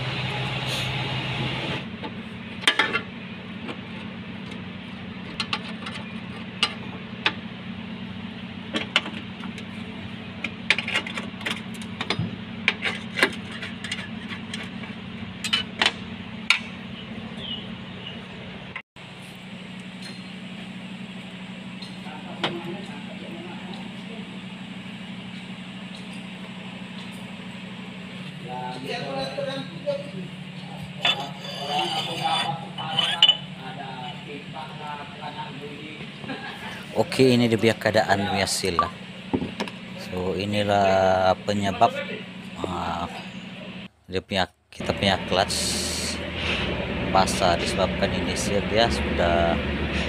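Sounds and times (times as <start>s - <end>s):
metal tools clinking on steel: 31.0s - 33.5s.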